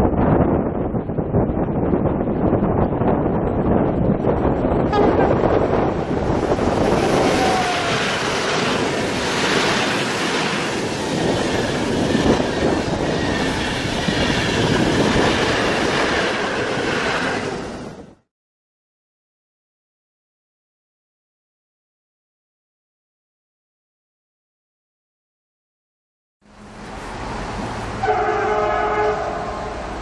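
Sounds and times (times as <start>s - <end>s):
train passing at speed: 0.0s - 18.2s, 26.4s - 30.0s.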